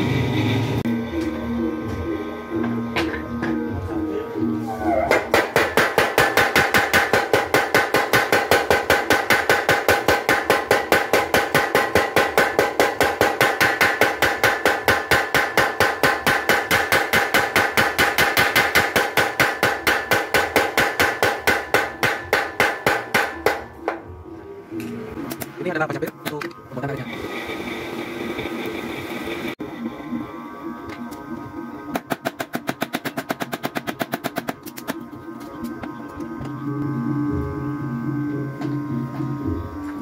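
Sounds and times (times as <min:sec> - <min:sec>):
power hammer striking hot steel: 0:05.1 - 0:24.0.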